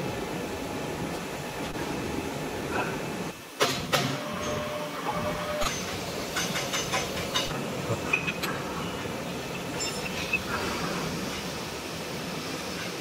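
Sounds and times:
workshop din: 3.6 - 10.8.

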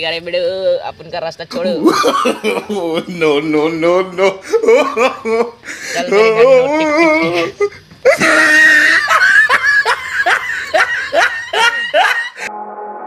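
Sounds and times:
hearty laughter: 1.8 - 12.5
sustained music chord: 12.4 - 13.0.

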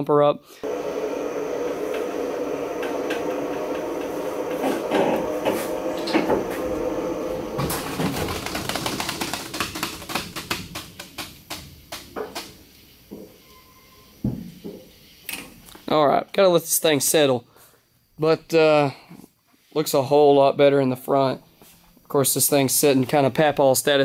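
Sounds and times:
run of clicks: 7.4 - 12.5.

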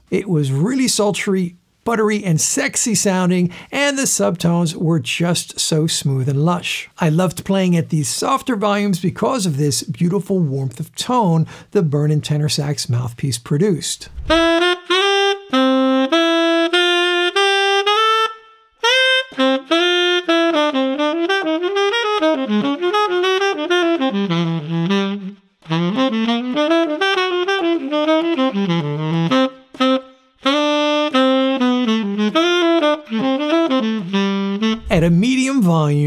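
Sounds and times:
tenor saxophone jazz melody: 14.4 - 36.0.

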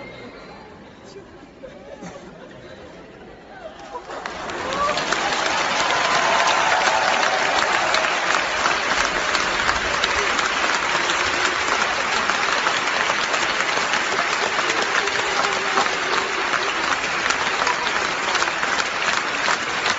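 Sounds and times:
audience applauding: 3.9 - 19.9.

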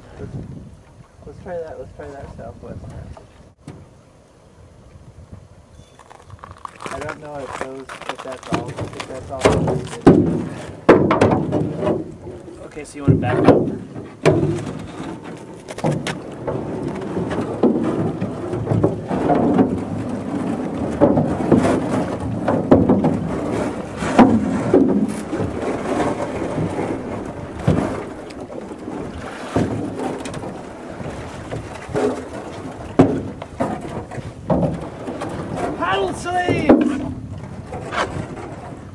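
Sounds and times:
ice grinding along boat hull: 5.9 - 38.9
knocks against boat: 8.5 - 12.4, 13.0 - 38.8.

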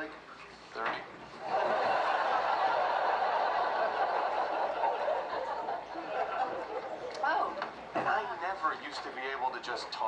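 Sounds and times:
studio audience laughing: 1.4 - 7.1.

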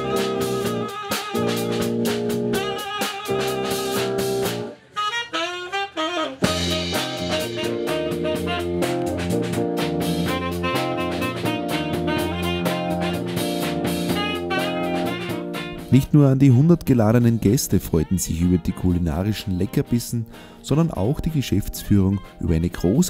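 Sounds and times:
band with steady drum beat: 0.0 - 4.7, 6.4 - 15.7
lone melody line bending in pitch: 0.0 - 20.0
instrumental background music: 0.0 - 23.0.

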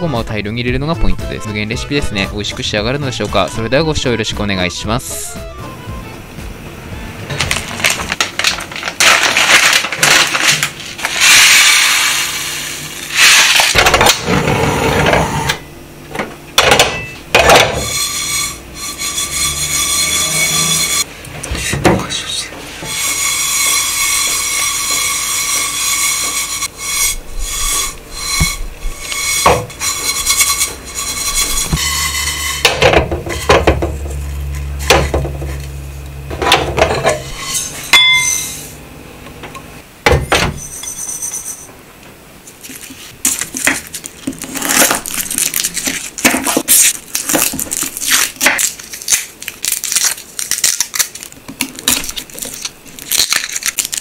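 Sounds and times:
seeds rattling in a saucepan: 7.8 - 13.8
pan clinking: 37.9 - 38.5.

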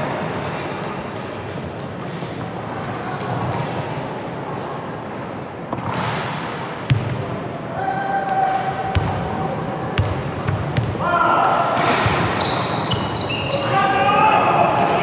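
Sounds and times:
echoing crowd voices: 0.0 - 15.0.

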